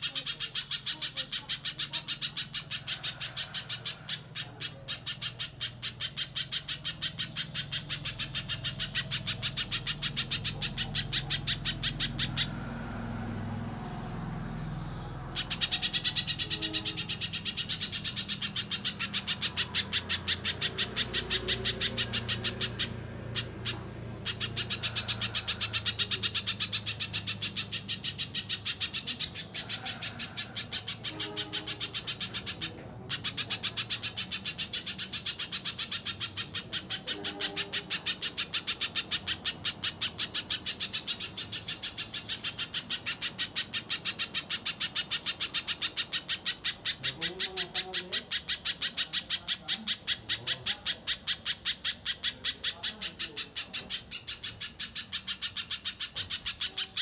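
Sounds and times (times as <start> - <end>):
bird calling high sharp notes: 0.0 - 57.0.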